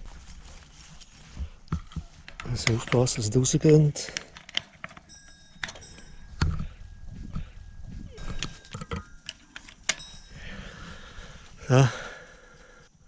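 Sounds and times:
footsteps on grass: 0.0s - 3.9s, 6.0s - 8.8s
metal hook clicking and clinking: 0.5s - 11.1s.

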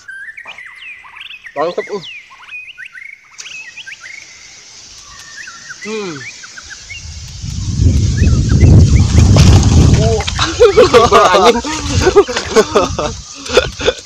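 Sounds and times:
birds chirping: 0.0s - 14.0s
wind buffeting microphone: 6.6s - 14.0s.

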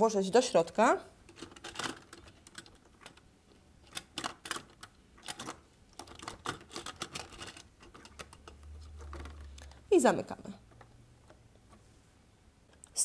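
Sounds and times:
plastic toy bricks clicking: 3.8s - 9.8s.

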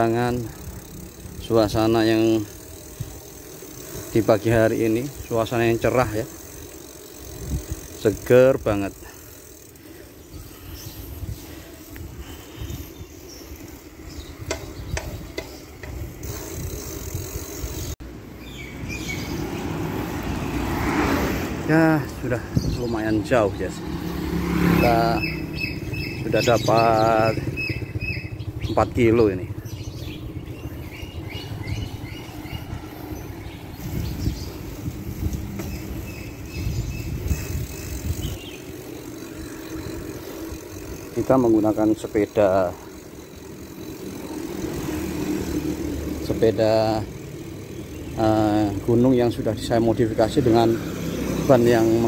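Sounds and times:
sharp clicks from bike: 0.0s - 18.0s, 22.8s - 52.0s
bike tyres rolling on asphalt: 0.0s - 52.0s
road noise: 0.0s - 52.0s
wind rumbling on microphone: 7.3s - 8.0s, 10.3s - 17.9s, 27.5s - 41.2s.

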